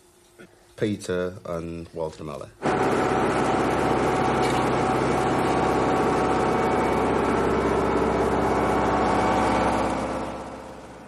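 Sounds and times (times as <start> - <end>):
heavy engine running: 2.6 - 11.0.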